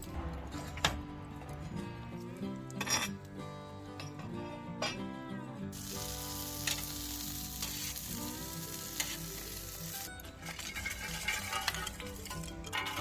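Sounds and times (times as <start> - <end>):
background guitar music: 0.0 - 13.0
meat sizzling and crackling: 5.7 - 13.0.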